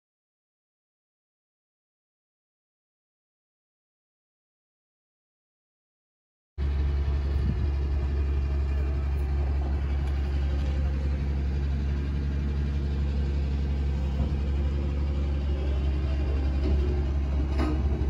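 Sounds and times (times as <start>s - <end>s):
jet engines rumbling: 6.6s - 18.0s.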